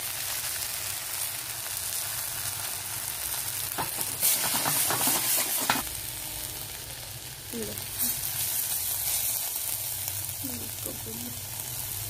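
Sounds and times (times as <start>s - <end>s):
vegetables sizzling in a wok: 0.0s - 12.0s
metal spatula scraping pan: 3.8s - 5.8s.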